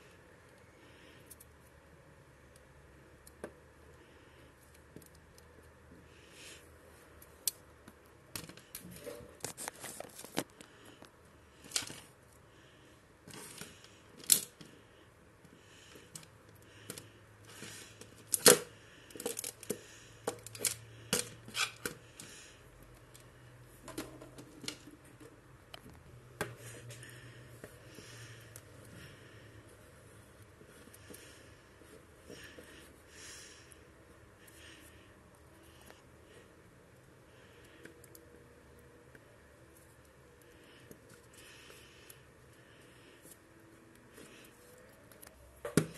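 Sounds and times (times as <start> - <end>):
plastic figures clicking and tapping: 15.9 - 22.4.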